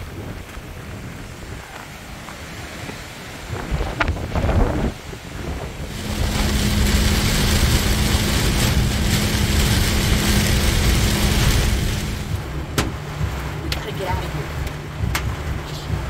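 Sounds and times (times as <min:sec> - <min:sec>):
wind buffeting microphone: 0:00.0 - 0:16.0
steady low hum: 0:05.3 - 0:16.0
heavy rain drumming on car roof: 0:05.5 - 0:16.0.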